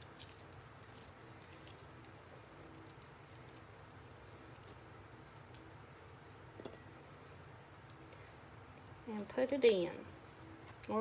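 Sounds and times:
garlic skin crinkling: 0.0 - 5.7
low room hum: 0.0 - 11.0.

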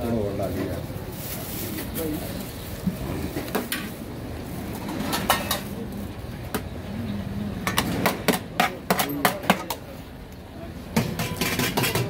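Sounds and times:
dishes and utensils clinking: 4.8 - 5.8, 11.0 - 12.0.

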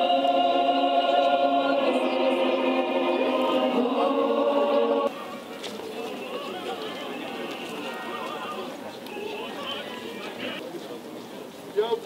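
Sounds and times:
choir singing held chords: 0.0 - 8.8
unpitched background noise: 0.0 - 12.0.

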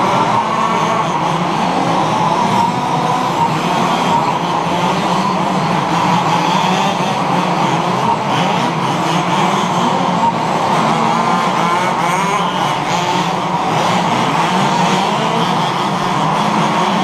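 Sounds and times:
rc buggy engines revving: 0.0 - 17.0.

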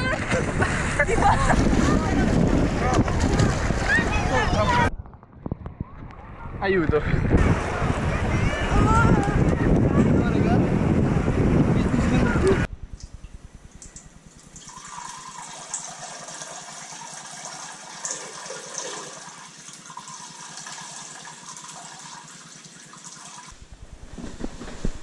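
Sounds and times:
water rushing: 14.4 - 23.6.

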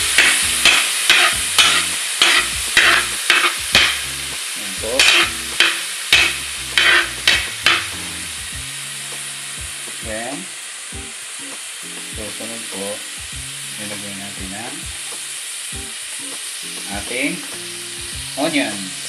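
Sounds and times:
garlic sizzling in hot oil: 0.0 - 19.0
spatula scraping pan: 0.1 - 4.0, 5.0 - 8.0.

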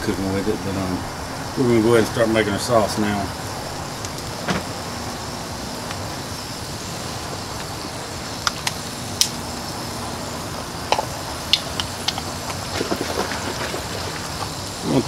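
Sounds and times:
fat sizzling in a pot: 0.0 - 15.0
sharp pops and crackles: 3.8 - 15.0.

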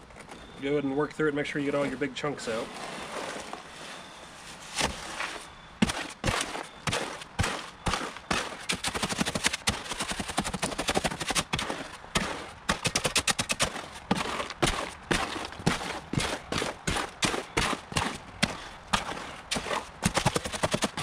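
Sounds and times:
shovel chopping and scraping concrete: 4.7 - 21.0.

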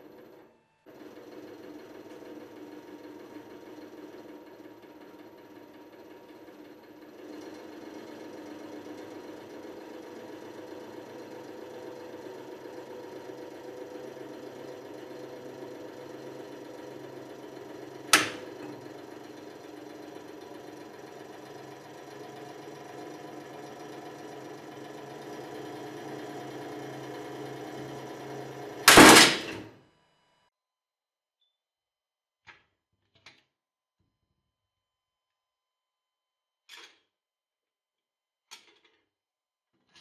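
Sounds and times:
hydraulic press humming: 14.0 - 29.8
loud bang of jack giving way: 18.1 - 18.5, 28.8 - 29.7
sharp metal crack: 28.9 - 29.7.

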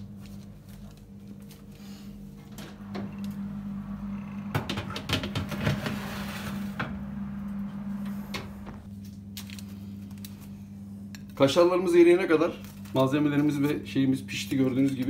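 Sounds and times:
steady low hum: 0.0 - 15.0
metal baking tray scraping: 5.4 - 6.8.

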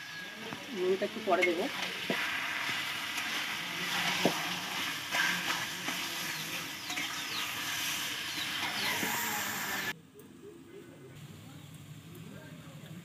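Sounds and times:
food sizzling in pan: 0.0 - 10.0.

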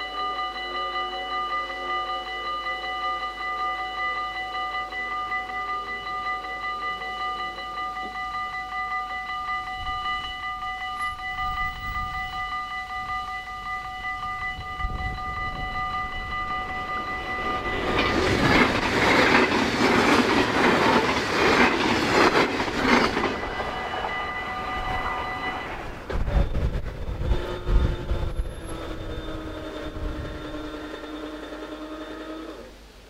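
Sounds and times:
level crossing bells ringing: 0.0 - 26.1
train wheels clattering: 14.8 - 32.7.

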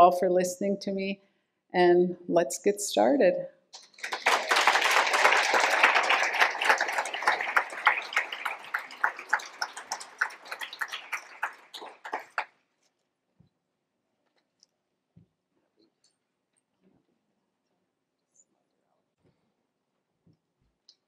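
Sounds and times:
audience applauding: 3.8 - 12.5.

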